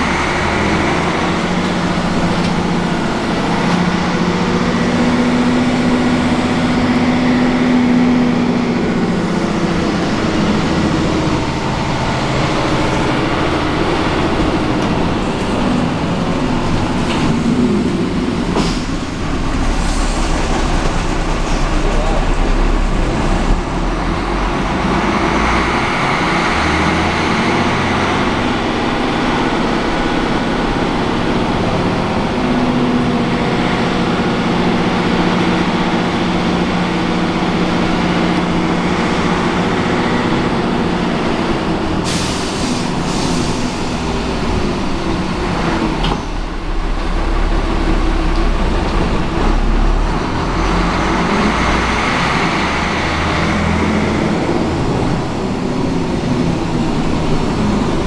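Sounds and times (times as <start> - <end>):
diesel bus engine running: 0.0 - 58.0
compressed air hiss: 42.0 - 43.7.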